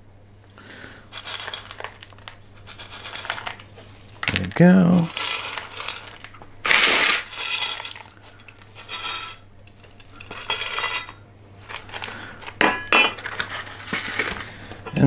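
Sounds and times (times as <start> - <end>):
pebbles rattling from scoop: 1.0 - 12.5
scoop clattering on metal table: 5.0 - 13.5.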